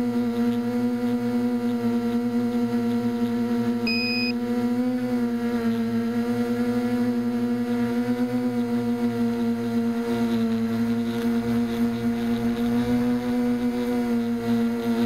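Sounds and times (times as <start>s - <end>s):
drone motors and propellers humming: 0.0s - 15.0s
short high beep: 3.9s - 4.3s.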